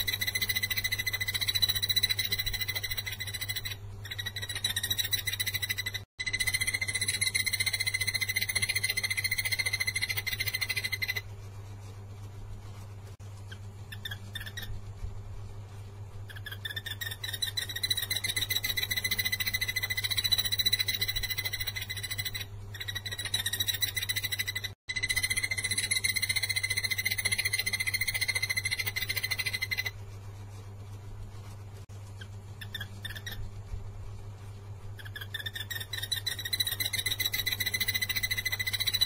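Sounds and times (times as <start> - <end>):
barbet singing rapid notes: 0.0 - 11.2.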